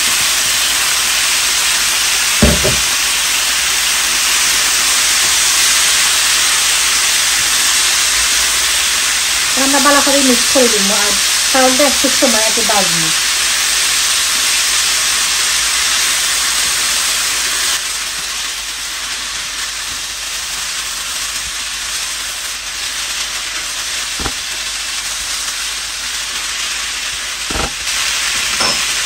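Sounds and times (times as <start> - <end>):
rice and meat sizzling in oil: 0.0 - 29.0
short knocks: 2.4 - 3.0.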